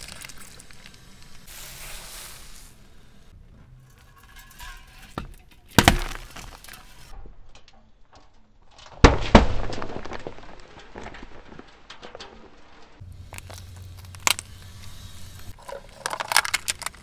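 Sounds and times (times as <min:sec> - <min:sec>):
tyre crunching over objects: 0:05.7 - 0:07.1, 0:09.7 - 0:17.0.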